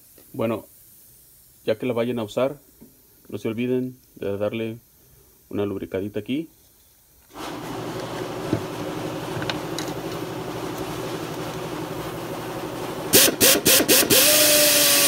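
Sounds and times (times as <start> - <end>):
steady low hum: 7.6 - 13.2
air drill whirring: 13.1 - 15.0.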